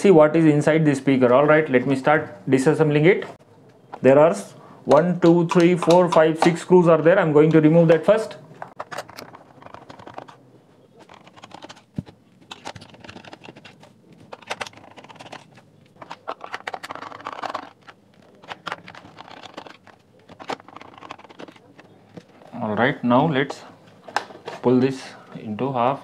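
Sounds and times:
screwdriver grinding on screws: 0:11.0 - 0:21.9.

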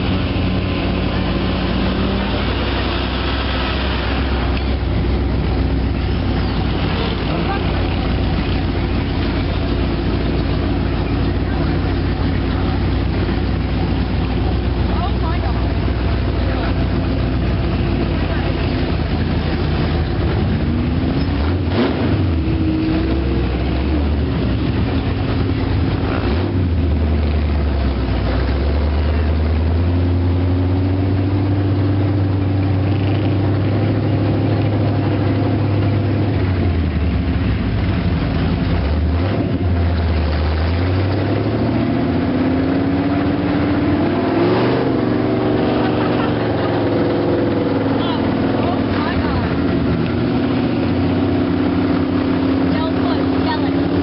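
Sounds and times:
atv engine revving: 0:00.0 - 0:54.0.

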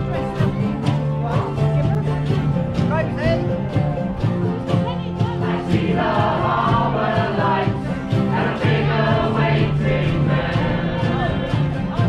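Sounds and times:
strummed acoustic guitars: 0:00.0 - 0:12.0
voices singing together: 0:05.0 - 0:12.0.

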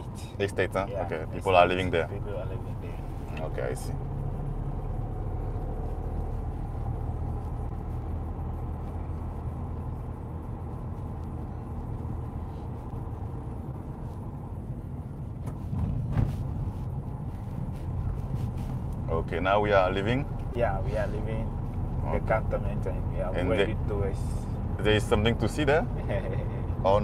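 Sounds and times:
engine and tyres rumbling: 0:00.0 - 0:27.0
car bump: 0:15.4 - 0:16.5.

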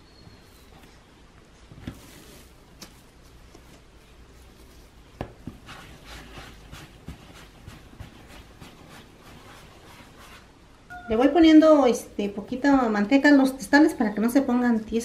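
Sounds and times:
hands rubbing dough on board: 0:01.8 - 0:10.6.

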